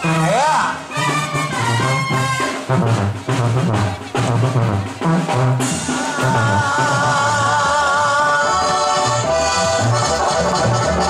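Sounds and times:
accordion wavering notes: 0:00.0 - 0:11.0
bass drum and snare hits: 0:01.5 - 0:07.6.

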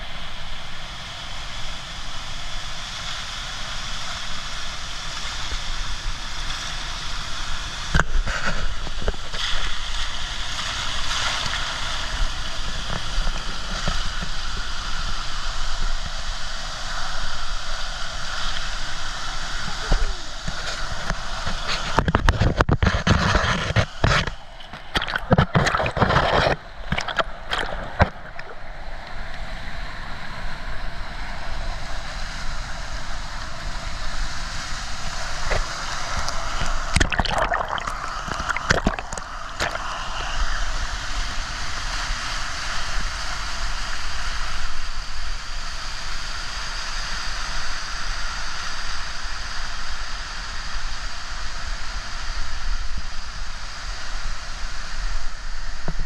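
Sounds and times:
whitewater rushing and splashing: 0:00.0 - 0:29.5, 0:31.4 - 0:56.0
splashing and knocking at camera: 0:21.5 - 0:28.6, 0:36.2 - 0:39.9.

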